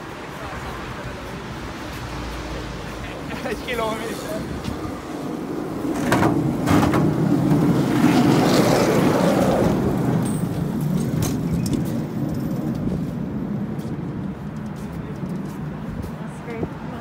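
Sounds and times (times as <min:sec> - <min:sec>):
vehicle passing by: 0:00.4 - 0:11.0.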